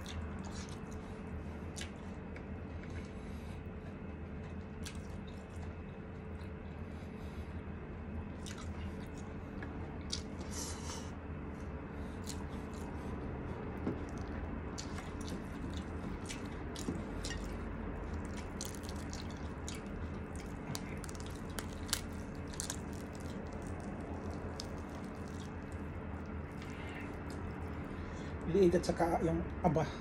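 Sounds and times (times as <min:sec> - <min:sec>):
steady low hum: 0:00.0 - 0:30.0
chicken torn apart by hand: 0:18.2 - 0:25.8.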